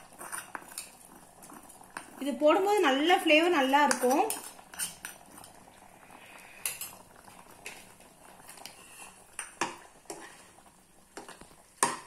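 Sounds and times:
metal spoon scraping pans: 0.0 - 0.9, 3.8 - 5.5.

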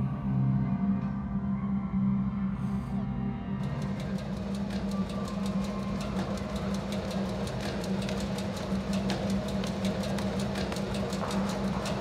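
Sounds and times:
fast mechanical clicking: 3.6 - 12.0.

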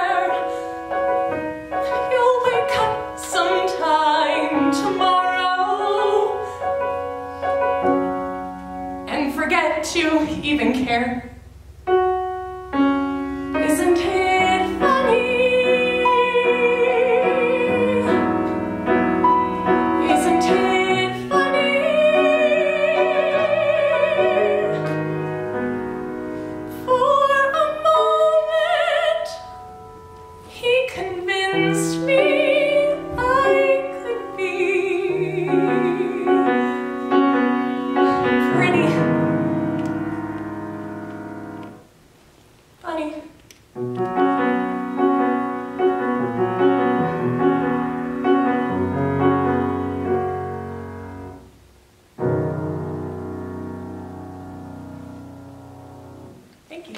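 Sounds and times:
woman singing a ballad: 0.0 - 0.7, 1.8 - 6.6, 13.6 - 18.6, 20.0 - 25.0, 26.7 - 29.5, 30.5 - 36.9, 38.0 - 39.4
piano accompaniment: 0.0 - 56.9.

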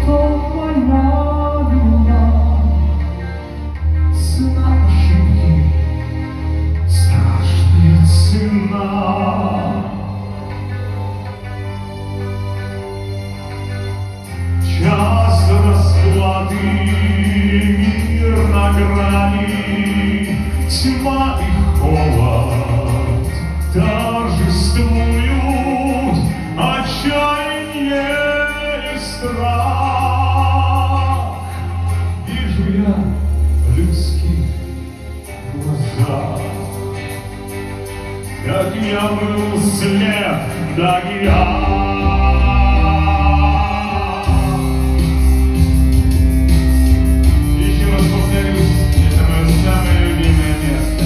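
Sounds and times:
man singing long notes: 14.6 - 34.8, 38.4 - 45.7, 47.4 - 51.0.

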